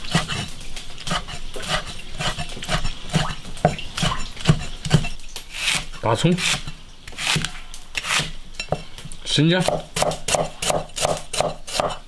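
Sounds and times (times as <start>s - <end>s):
cleaver chopping on wooden board: 9.6s - 12.0s.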